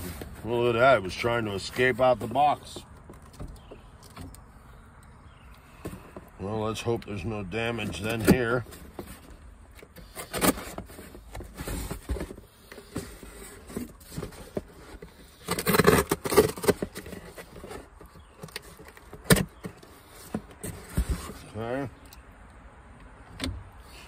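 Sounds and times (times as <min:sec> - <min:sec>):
packing rustling: 0:07.7 - 0:21.5.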